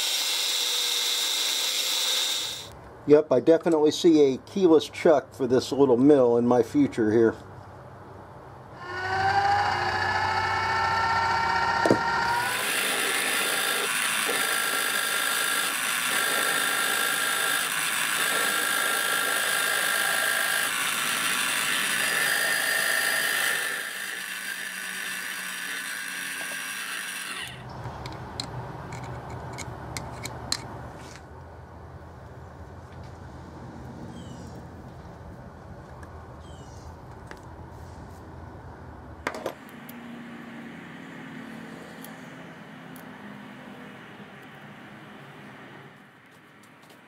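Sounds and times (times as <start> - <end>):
drill cutting through steel: 0.0 - 2.7, 10.6 - 27.6
spindle motor whine: 9.2 - 27.7.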